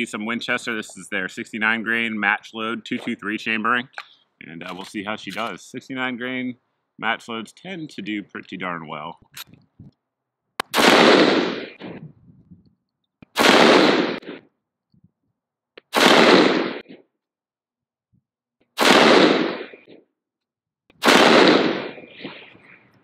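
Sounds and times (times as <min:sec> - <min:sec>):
rifle shots: 0:10.6 - 0:11.9, 0:13.3 - 0:14.4, 0:15.9 - 0:17.0, 0:18.8 - 0:19.9, 0:21.0 - 0:22.5.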